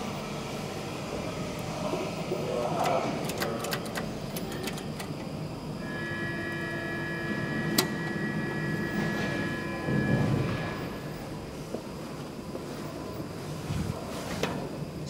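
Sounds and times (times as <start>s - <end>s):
elevator buttons clicking: 2.6s - 5.3s.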